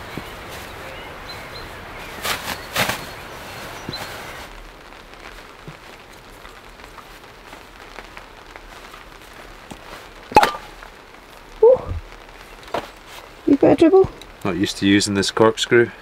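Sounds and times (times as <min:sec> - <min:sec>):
cork popping: 0:10.3 - 0:10.7.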